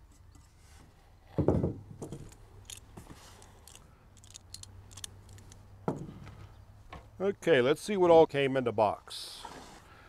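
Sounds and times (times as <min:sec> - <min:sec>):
hardware clicking and rustling: 0:02.0 - 0:05.6.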